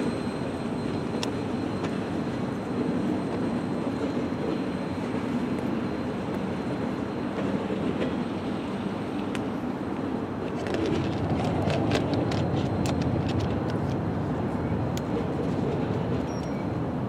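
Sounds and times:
freight train rumbling: 0.0s - 17.0s
train wheels clicking: 10.4s - 14.1s.

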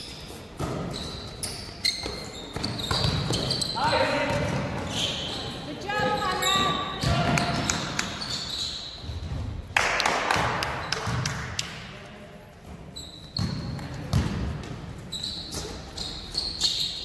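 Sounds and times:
sneakers squeaking: 0.0s - 9.6s, 12.5s - 17.0s
basketball bouncing: 2.0s - 3.6s, 13.4s - 14.8s.

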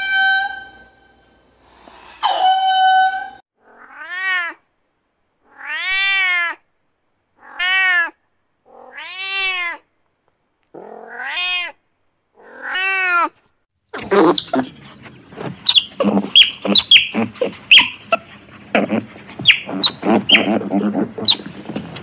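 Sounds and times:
cat meowing: 3.6s - 4.6s, 5.5s - 6.6s, 7.4s - 9.8s, 10.8s - 11.8s, 12.4s - 13.3s.

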